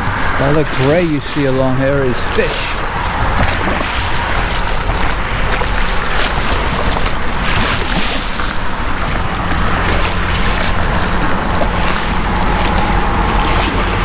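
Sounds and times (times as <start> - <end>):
low steady hum: 0.0 - 14.0
shoreline water: 0.0 - 14.0
wind: 0.0 - 14.0.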